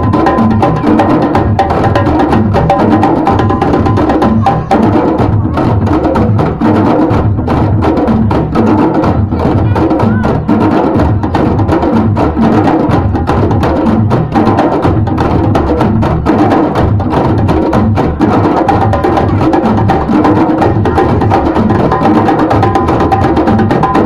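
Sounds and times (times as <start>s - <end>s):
djembes drumming: 0.0s - 24.0s.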